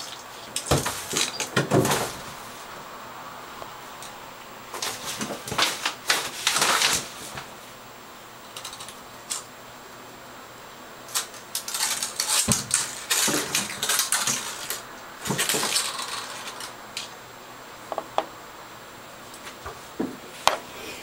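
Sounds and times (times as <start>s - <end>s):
claws scrabbling in bathtub: 0.0s - 2.8s, 4.0s - 7.7s, 11.1s - 17.2s.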